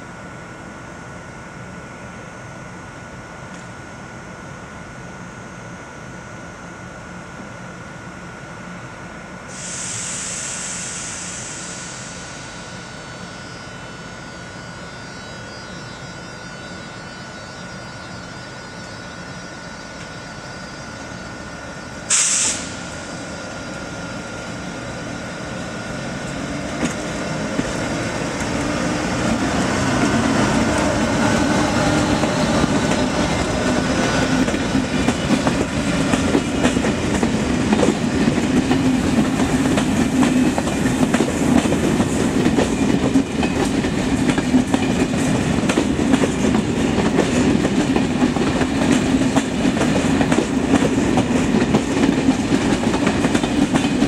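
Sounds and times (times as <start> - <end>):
locomotive high whine: 0.0 - 54.0
loud air hiss: 9.4 - 13.4, 22.0 - 25.4
train wheels rumble and clatter: 22.1 - 54.0.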